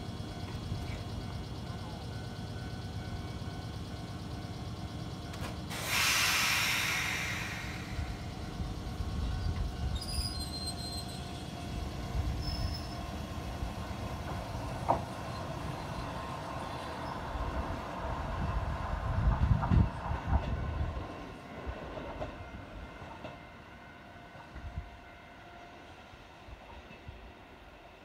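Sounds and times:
electric train low rumble: 0:00.0 - 0:28.0
compressed air hiss: 0:05.7 - 0:08.5
high squeals: 0:09.9 - 0:11.4.

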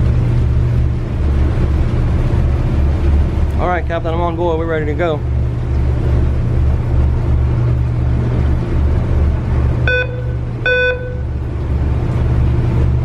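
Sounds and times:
ferry engines throbbing: 0:00.0 - 0:13.0
short high beeps: 0:09.9 - 0:11.3.

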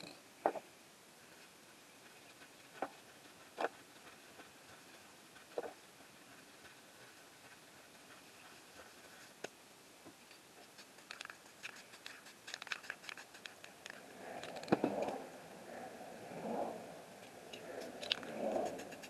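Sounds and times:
rustling: 0:01.2 - 0:15.3
light clicks and taps: 0:08.4 - 0:15.2.

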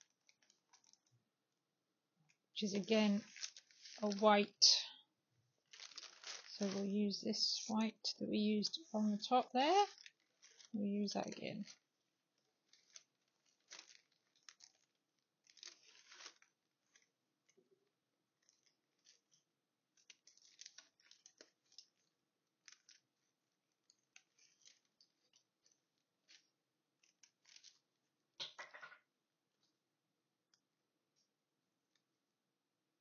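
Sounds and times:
fabric and paper rustling: 0:00.0 - 0:01.2, 0:02.7 - 0:04.9, 0:05.6 - 0:28.2.

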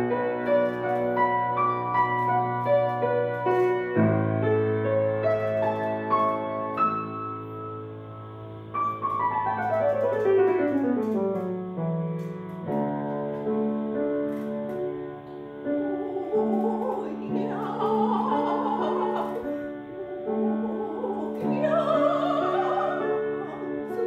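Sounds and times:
grand piano playing: 0:00.0 - 0:24.0
woman singing with vibrato: 0:15.9 - 0:24.0.

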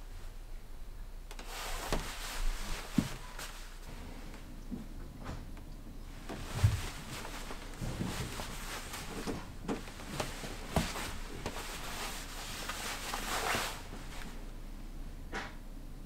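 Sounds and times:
fabric rustling: 0:01.4 - 0:04.2, 0:06.1 - 0:14.5.

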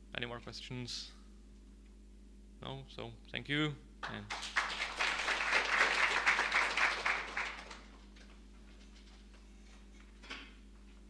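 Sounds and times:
audience applauding: 0:04.0 - 0:08.1.

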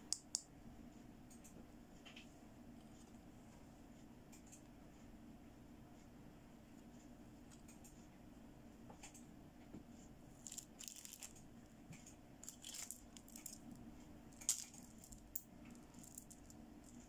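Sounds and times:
plastic beads clicking together: 0:12.4 - 0:13.6, 0:14.4 - 0:17.0.

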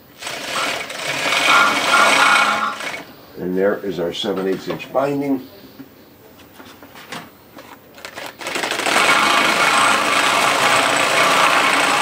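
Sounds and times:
chainstitch sewing machine running: 0:00.0 - 0:03.0, 0:08.0 - 0:12.0.

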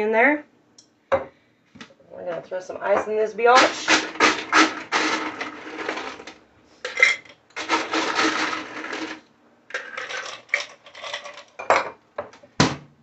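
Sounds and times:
ice cubes clinking in metal cup: 0:03.6 - 0:06.3, 0:06.9 - 0:11.6.

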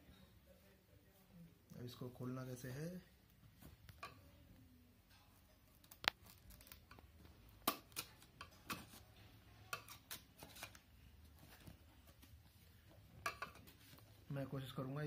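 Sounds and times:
knife cutting plastic packaging: 0:09.7 - 0:10.9.

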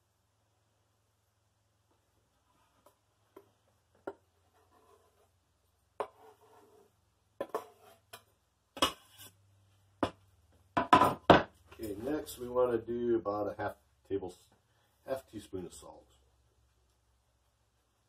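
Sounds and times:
knife scraping cutting board: 0:04.5 - 0:05.3, 0:06.0 - 0:08.2, 0:08.8 - 0:09.4.

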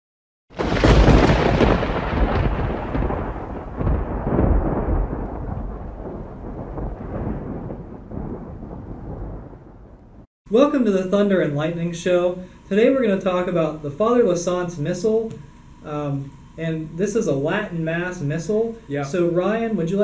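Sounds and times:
thunder rumbling: 0:00.5 - 0:10.3.

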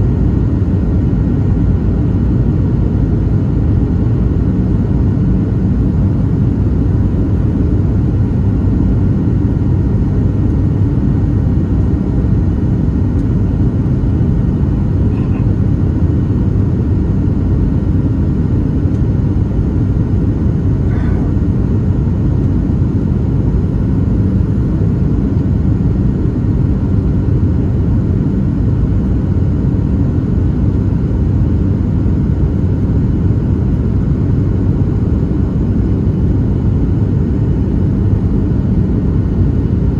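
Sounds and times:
airplane cabin engine rumble: 0:00.0 - 0:39.9.

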